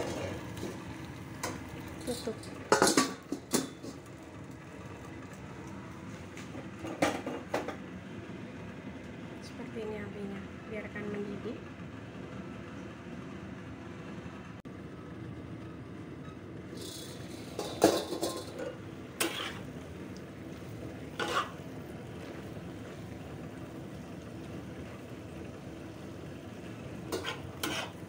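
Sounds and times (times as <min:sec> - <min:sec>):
braise simmering hiss: 0:00.0 - 0:07.8, 0:16.6 - 0:28.0
spatula clanking against pan: 0:21.2 - 0:21.6, 0:27.1 - 0:28.0.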